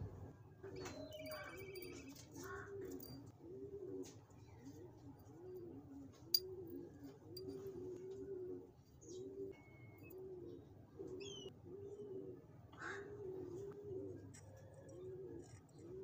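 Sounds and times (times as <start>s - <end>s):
small bird chirping: 0.8s - 3.2s
dove cooing: 0.8s - 16.0s.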